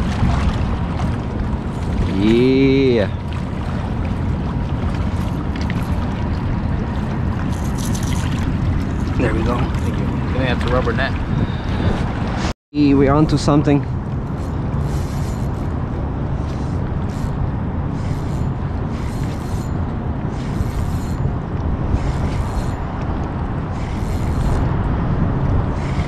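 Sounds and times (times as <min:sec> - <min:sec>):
wind buffeting microphone: 0:00.0 - 0:26.0
fishing reel bursts: 0:14.4 - 0:15.7, 0:16.6 - 0:17.4, 0:18.0 - 0:21.2, 0:22.0 - 0:22.8, 0:23.7 - 0:24.7.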